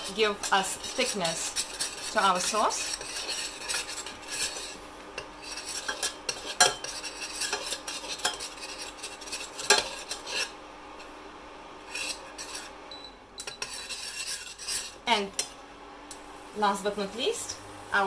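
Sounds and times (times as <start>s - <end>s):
metal spoon scraping saucepan: 0.0s - 10.6s, 11.9s - 12.7s, 13.4s - 15.0s
light sizzle of frying: 0.0s - 18.0s.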